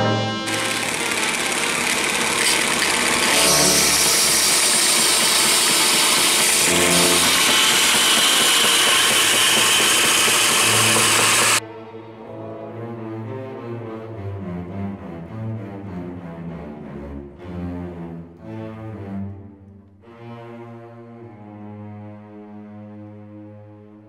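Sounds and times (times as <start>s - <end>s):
power tool hissing: 0.3s - 11.6s.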